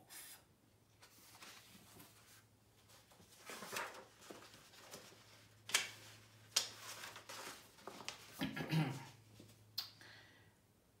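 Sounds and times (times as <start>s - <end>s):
paper pages rustling: 1.0s - 8.4s
page flap: 3.3s - 8.4s.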